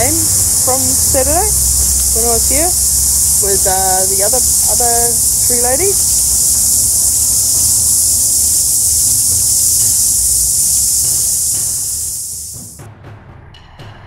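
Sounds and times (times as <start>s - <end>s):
high-pitched insect chorus: 0.0s - 12.8s
low rumble: 0.0s - 12.8s.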